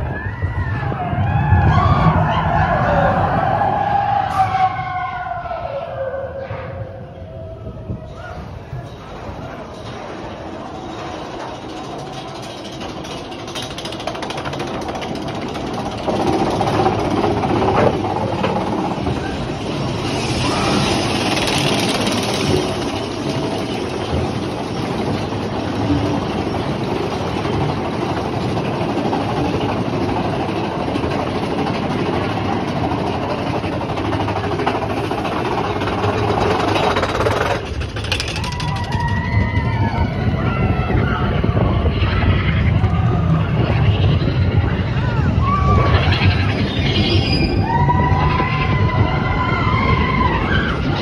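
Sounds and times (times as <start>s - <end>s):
wheels rumbling on track: 0.0s - 51.0s
chain lift clatter: 8.8s - 39.6s.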